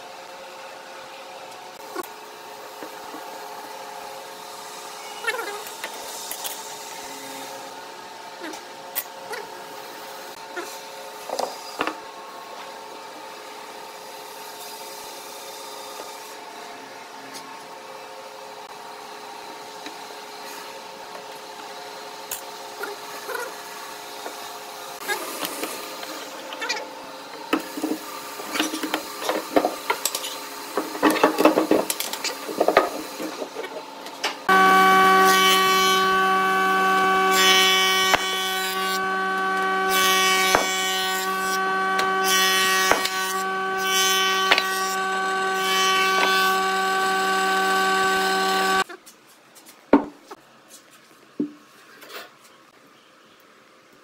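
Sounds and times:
faint machine hum: 0.0s - 49.0s
thickness planer whine: 30.6s - 48.9s.

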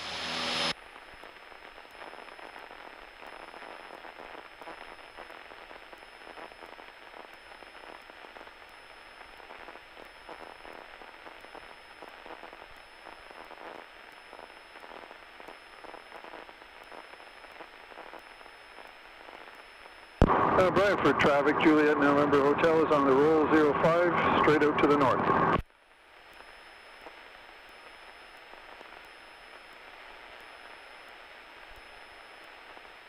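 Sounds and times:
thin high-pitched whine: 0.0s - 2.6s
radio static hiss and crackle: 0.0s - 33.0s.

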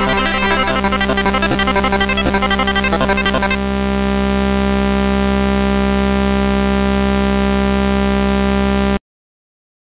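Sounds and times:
buzzing synthesized tone: 0.0s - 4.1s.

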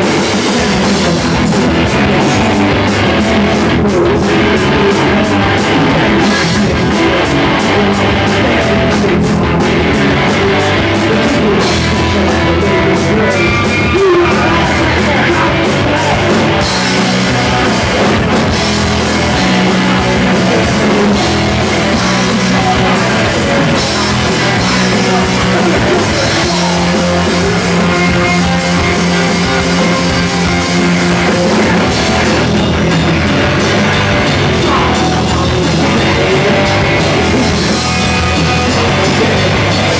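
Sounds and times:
electric guitar: 0.0s - 39.9s
live rock band playing: 0.0s - 39.9s.

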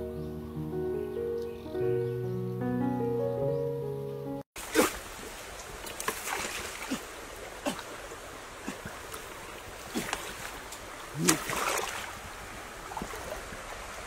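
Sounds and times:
stream flowing: 4.6s - 14.0s
water splashing as person wades: 4.6s - 14.0s.

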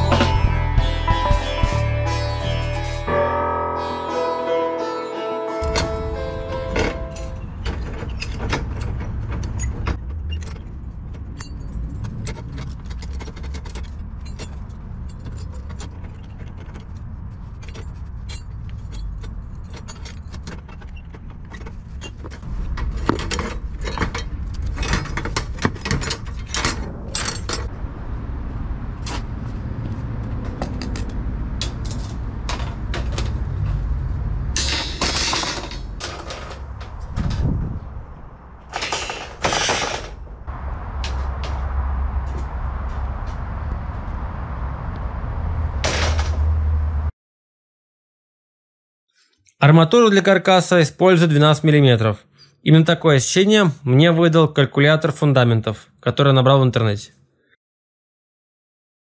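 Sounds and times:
metal wire clinking and scraping: 1.1s - 3.1s, 6.8s - 27.7s
steady low rumble: 21.2s - 47.1s.

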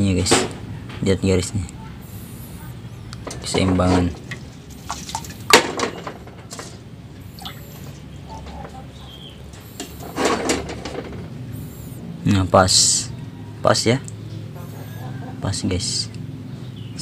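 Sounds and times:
water sloshing and dripping: 3.2s - 11.4s
water splash: 3.9s - 6.0s.

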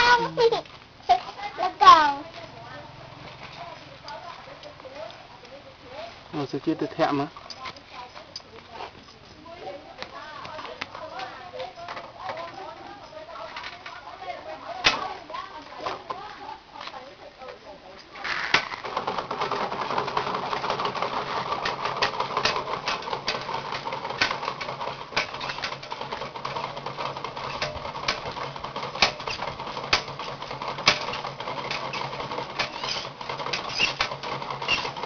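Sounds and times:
pedal-driven water pump whirring: 0.0s - 17.1s, 18.2s - 35.0s
clicks and clacks from pump drive: 18.5s - 35.0s.

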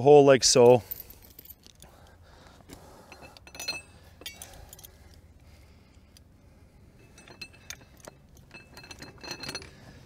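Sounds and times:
metal clinks of punch and chain: 3.1s - 5.0s, 7.0s - 10.0s.

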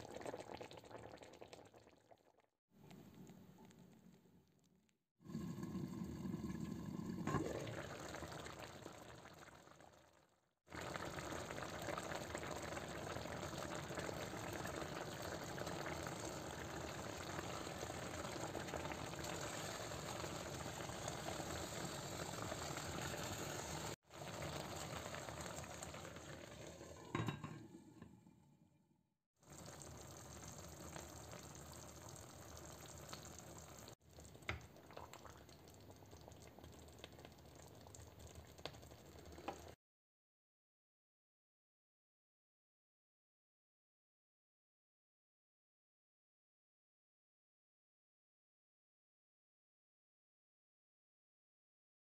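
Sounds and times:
sauce simmering in a frying pan: 0.0s - 2.4s, 5.2s - 27.1s, 29.4s - 39.8s
glass lid clinking on pan: 27.1s - 27.6s.

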